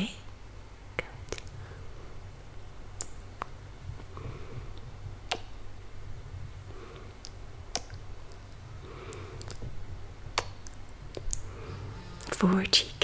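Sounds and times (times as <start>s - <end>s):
soft breathing: 1.0s - 2.6s, 3.4s - 13.0s
kiss lip smacks: 1.3s - 1.6s, 3.0s - 3.5s, 5.3s - 5.6s.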